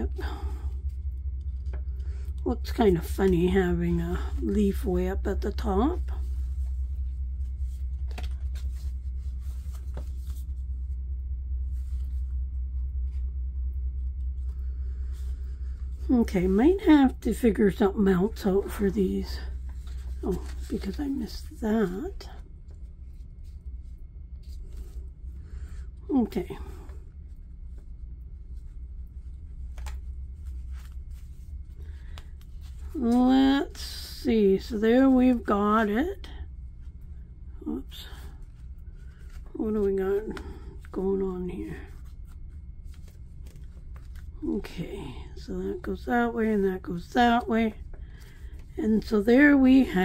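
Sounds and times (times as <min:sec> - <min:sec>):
steady low hum: 0:00.0 - 0:50.0
cardstock tags rustling: 0:19.7 - 0:22.0.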